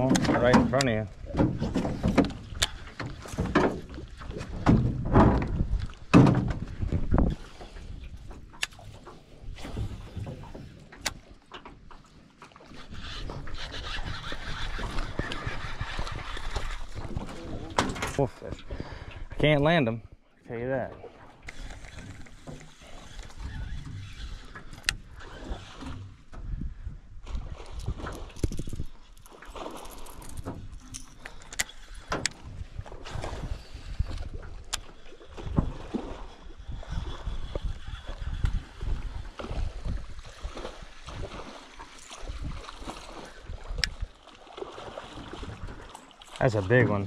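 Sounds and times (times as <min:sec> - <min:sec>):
soft knocks in metal boat: 0:00.0 - 0:07.2
water rumble: 0:00.0 - 0:47.0.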